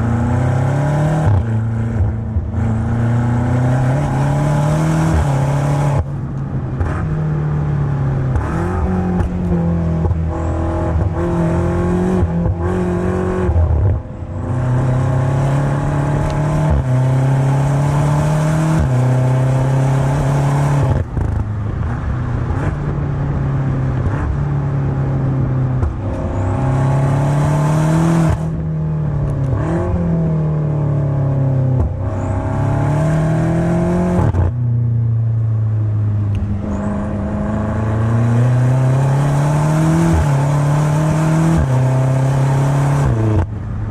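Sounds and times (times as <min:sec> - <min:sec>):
car engine exhaust revving: 0:00.0 - 0:34.9.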